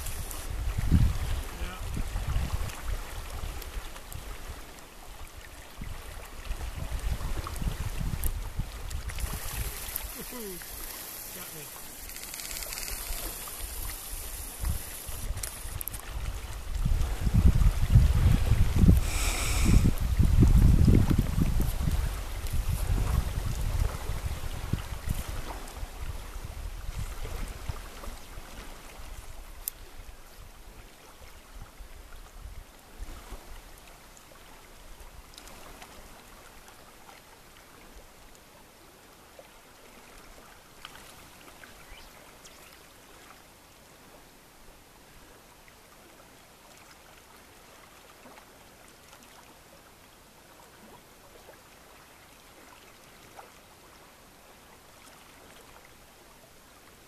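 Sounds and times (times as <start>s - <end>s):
wind rumbling on microphone: 0.0s - 33.6s
river water flowing: 0.0s - 57.0s.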